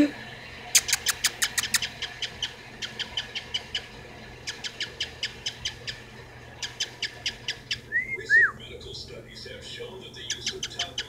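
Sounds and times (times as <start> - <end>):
cockatiel kissing clicks: 0.8 - 3.0.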